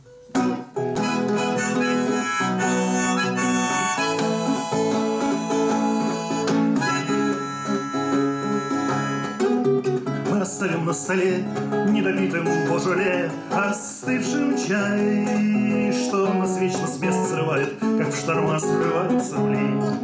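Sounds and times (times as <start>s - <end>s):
harmonica melody: 0.0s - 10.9s
acoustic guitar: 0.0s - 20.0s.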